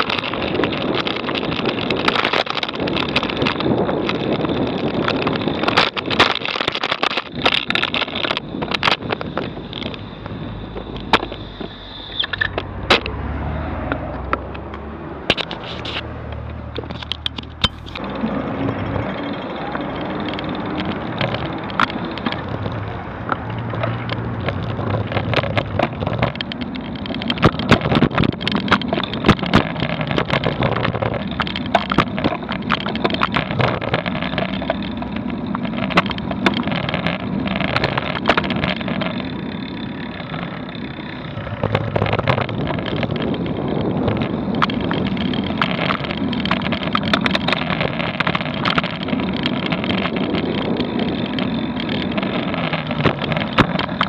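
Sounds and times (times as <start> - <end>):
traffic rumble and hum: 0.0 - 54.0
camera mount rattling clicks: 14.3 - 18.0.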